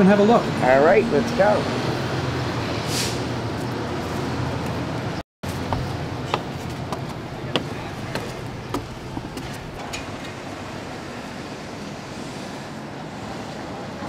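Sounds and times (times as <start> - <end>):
street noise: 0.0 - 14.0
footsteps on wooden stairs: 5.5 - 9.8.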